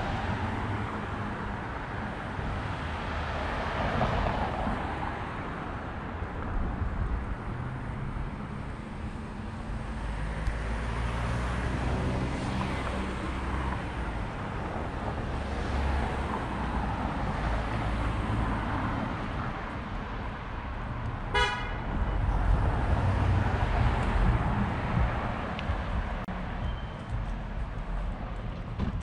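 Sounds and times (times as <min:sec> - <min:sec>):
cars passing: 0:00.0 - 0:29.0
car horn toot: 0:21.3 - 0:21.8.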